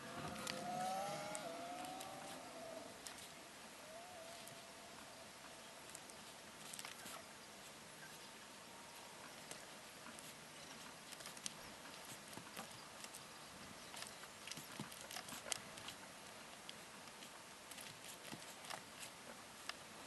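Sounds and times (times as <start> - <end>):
small clicks and light taps: 9.4 - 13.2.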